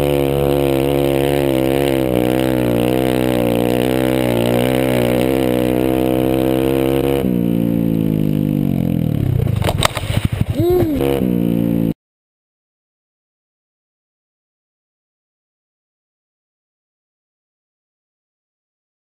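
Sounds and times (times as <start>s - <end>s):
dirt bike engine running: 0.0s - 12.0s.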